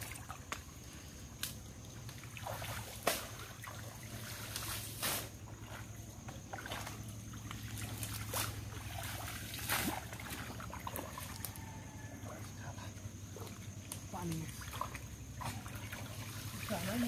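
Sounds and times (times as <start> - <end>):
low steady hum: 0.0 - 17.0
wading through muddy water: 0.0 - 17.0
sharp splashes: 2.1 - 11.5.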